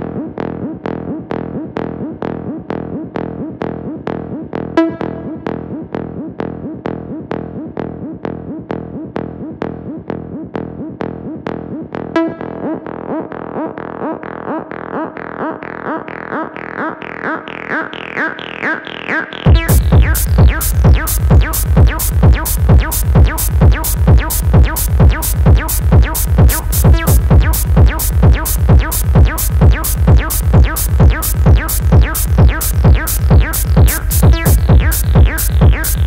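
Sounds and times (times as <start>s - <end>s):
acid synth bassline: 0.0s - 36.0s
heavy kick drum: 19.5s - 36.0s.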